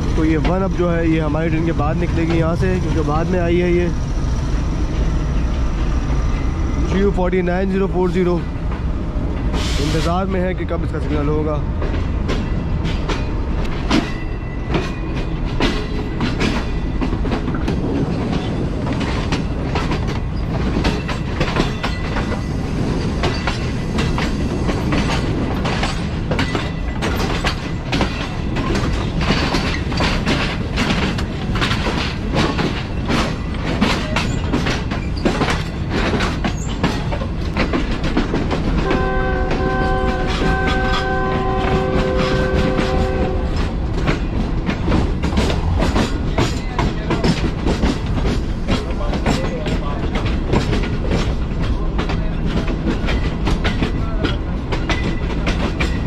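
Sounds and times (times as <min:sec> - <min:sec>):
train wheels clattering: 0:00.0 - 0:56.0
train horn: 0:38.8 - 0:43.7.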